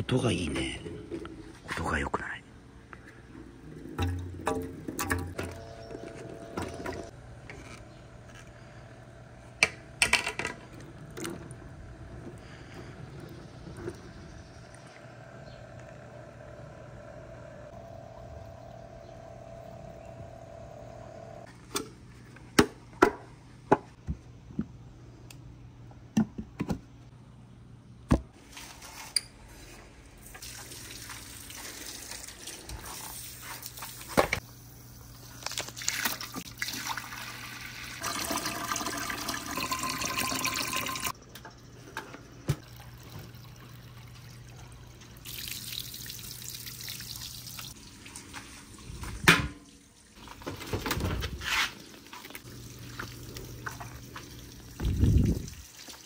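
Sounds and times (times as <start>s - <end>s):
steady low hum: 0.0s - 22.4s.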